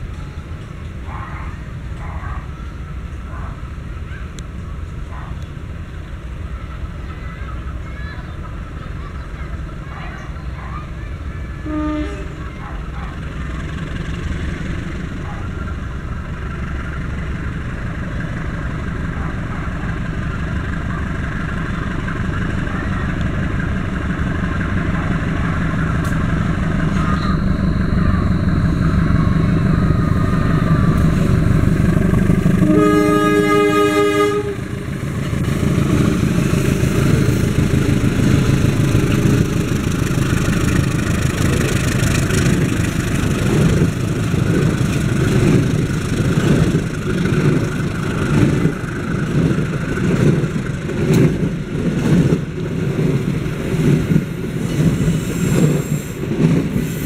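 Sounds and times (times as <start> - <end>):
diesel locomotive engine rumble: 0.0 - 57.0
train wheels on rails: 0.0 - 57.0
train horn: 11.6 - 12.6, 32.5 - 34.9.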